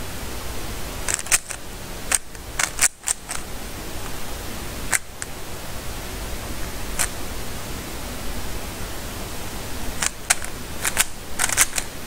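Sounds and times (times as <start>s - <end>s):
steady background hiss: 0.0s - 12.0s
puzzle cube clicking: 1.1s - 3.5s, 4.9s - 5.3s, 6.9s - 7.2s, 10.0s - 11.9s.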